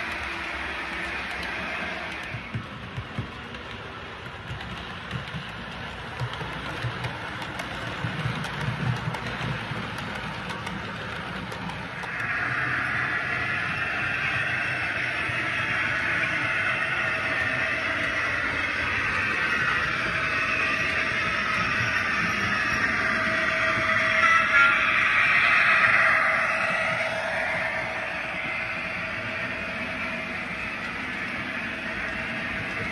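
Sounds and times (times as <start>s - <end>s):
wheels clicking over track: 0.0s - 24.0s.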